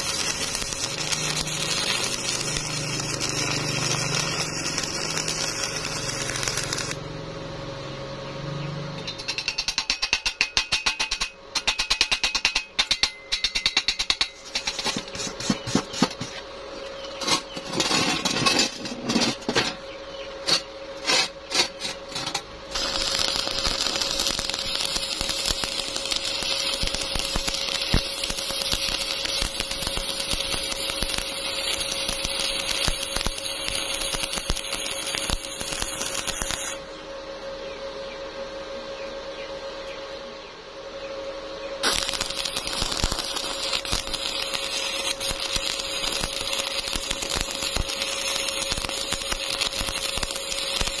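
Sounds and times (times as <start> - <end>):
welding arc crackling: 0.0 - 7.2, 8.9 - 16.4, 20.5 - 36.8, 41.8 - 51.0.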